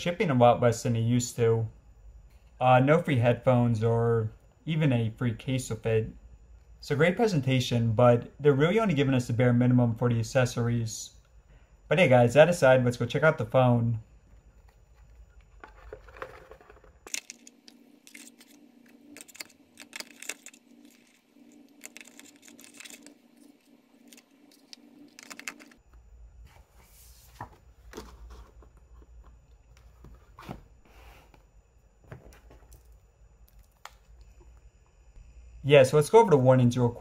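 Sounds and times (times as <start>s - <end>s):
packaging handling clicks and scrapes: 14.5s - 25.8s.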